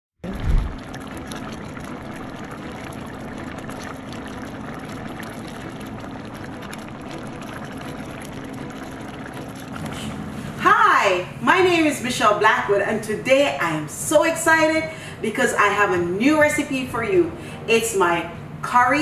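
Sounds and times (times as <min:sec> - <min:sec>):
curry bubbling and popping: 0:00.2 - 0:10.1.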